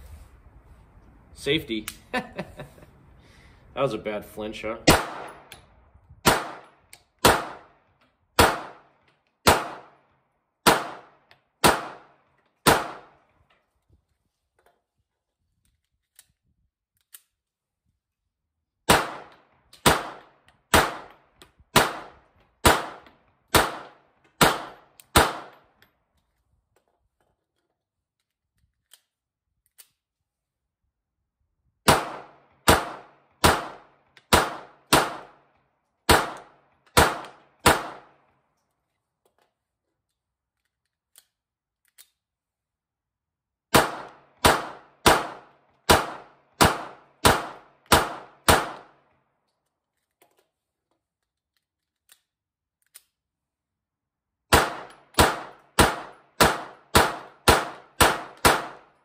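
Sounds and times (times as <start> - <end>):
pistol shots: 4.8 - 5.6, 6.2 - 7.8, 8.4 - 13.2, 18.9 - 25.7, 31.8 - 35.5, 36.1 - 38.2, 43.7 - 49.0, 54.5 - 59.0.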